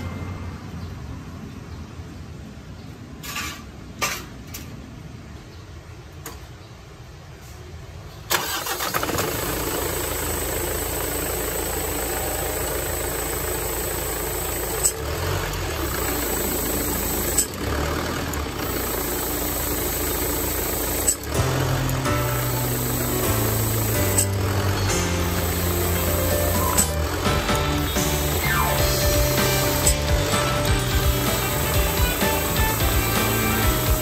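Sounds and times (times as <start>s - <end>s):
diesel truck engine idling: 8.4s - 34.0s.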